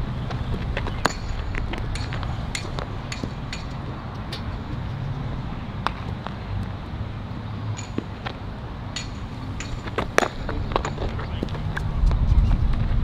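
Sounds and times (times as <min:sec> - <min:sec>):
steady low rumble: 0:00.0 - 0:13.0
baseballs popping into gloves: 0:05.8 - 0:06.7, 0:09.0 - 0:12.2.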